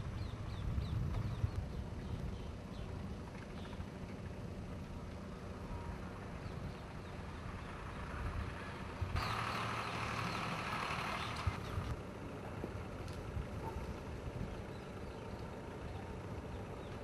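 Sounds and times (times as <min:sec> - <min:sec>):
steady low rumble: 0:00.0 - 0:09.2.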